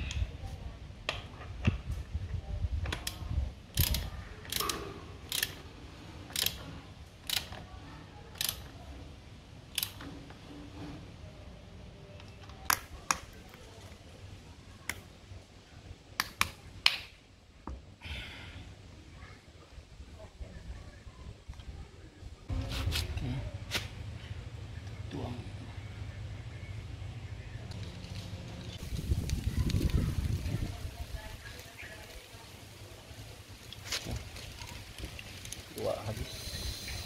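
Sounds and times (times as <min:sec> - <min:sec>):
ratchet wrench clicking: 0:03.0 - 0:05.6, 0:06.3 - 0:06.6, 0:07.2 - 0:07.6, 0:08.4 - 0:08.7, 0:09.7 - 0:10.0.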